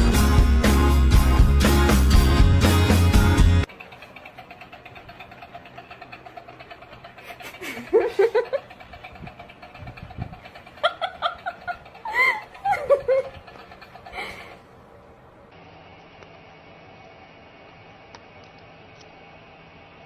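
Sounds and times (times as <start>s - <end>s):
small motor ticking: 3.6s - 14.7s
people laughing: 7.1s - 8.9s, 10.4s - 14.5s.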